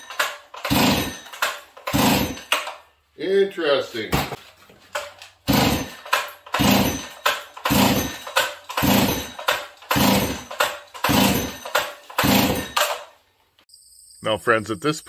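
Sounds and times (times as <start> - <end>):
chainsaw engine cranking: 0.0 - 2.9, 4.9 - 13.2
recoil starter rope pulls: 0.0 - 2.9, 4.8 - 13.1.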